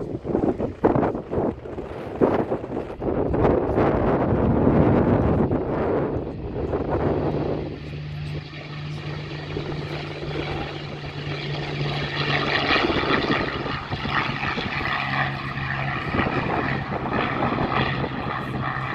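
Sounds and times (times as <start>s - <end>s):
aero engine running at high power: 0.0s - 18.9s.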